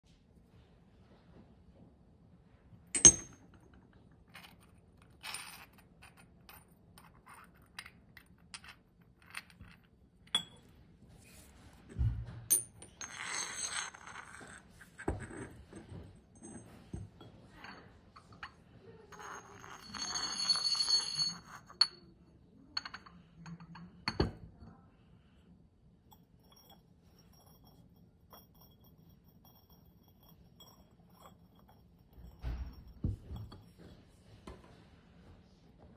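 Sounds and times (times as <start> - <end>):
porcelain clinks: 2.9 - 10.7, 12.5 - 22.1, 22.8 - 24.6, 26.1 - 34.0
porcelain scraping with ringing: 4.3 - 11.6, 12.6 - 24.7, 26.1 - 34.3.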